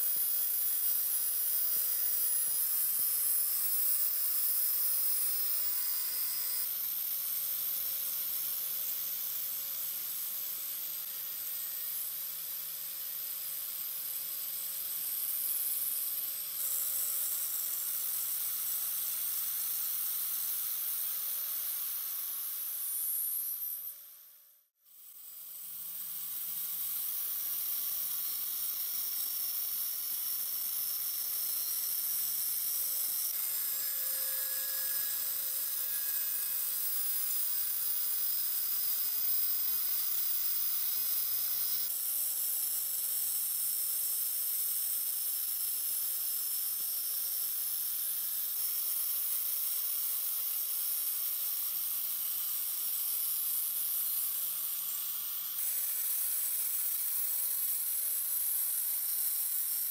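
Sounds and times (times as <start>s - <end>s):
grinder motor hum: 25.5s - 41.9s
grinder disc hissing on metal: 26.8s - 41.9s, 54.1s - 59.9s.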